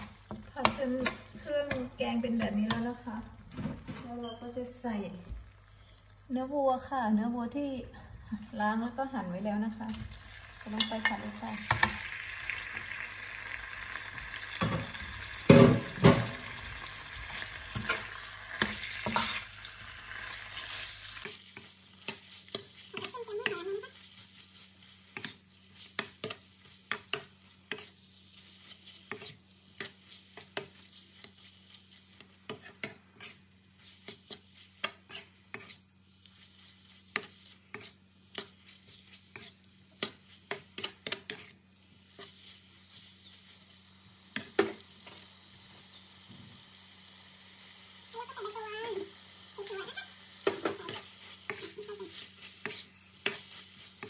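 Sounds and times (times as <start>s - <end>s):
metal spatula scraping a pan: 0.0s - 3.0s, 10.1s - 13.0s, 13.8s - 43.6s, 49.6s - 54.0s
meat sizzling in a pan: 0.0s - 3.5s, 4.1s - 54.0s.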